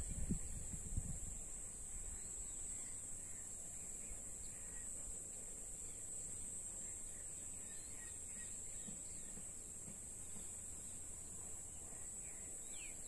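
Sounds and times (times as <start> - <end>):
low wind rumble on microphone: 0.0 - 2.4
faint bird chirps: 1.9 - 13.0.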